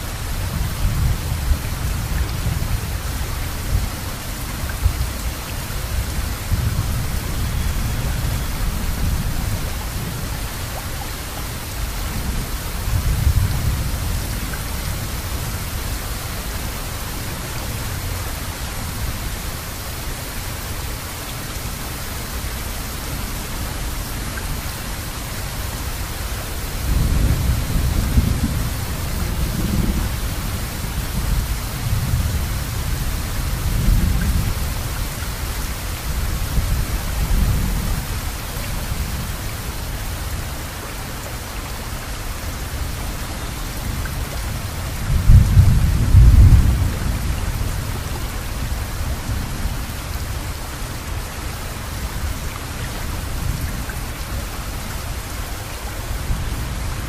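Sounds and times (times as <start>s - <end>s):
low thunder rumbles: 0.0s - 10.4s, 12.0s - 18.3s, 26.7s - 40.4s, 43.8s - 50.4s
rain hissing: 0.0s - 57.0s.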